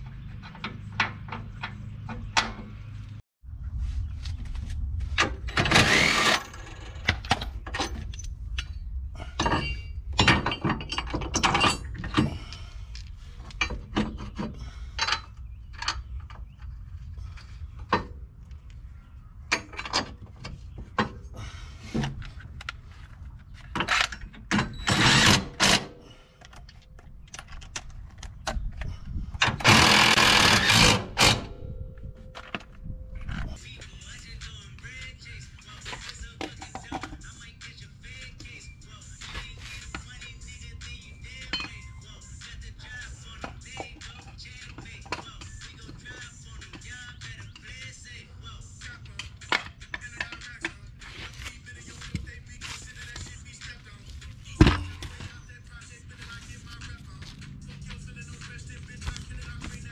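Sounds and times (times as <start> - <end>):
hand tools clanking on metal: 5.2 - 12.6, 13.5 - 16.6, 41.3 - 42.0, 49.1 - 50.9, 54.5 - 55.6
power tool bursts: 5.6 - 6.4, 29.6 - 31.5
low rumble: 31.4 - 35.7.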